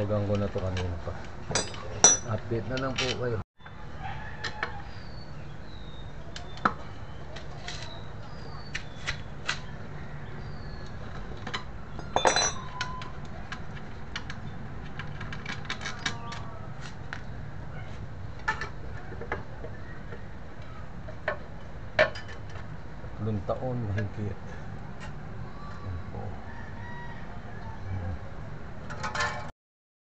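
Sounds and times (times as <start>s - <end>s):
metal cover clattering: 12.0s - 12.7s, 28.9s - 29.5s
metal clinks of bolts and tools: 12.0s - 12.9s.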